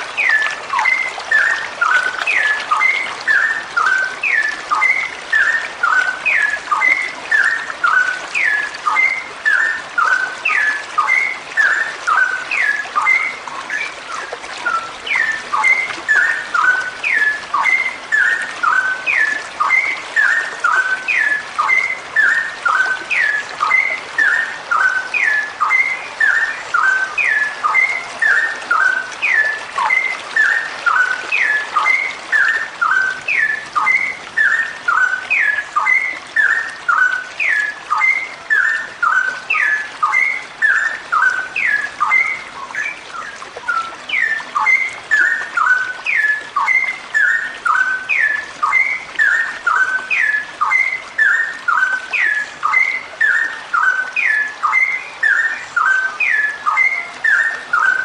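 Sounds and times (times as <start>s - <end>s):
bulbul singing whistled notes: 0.0s - 58.0s.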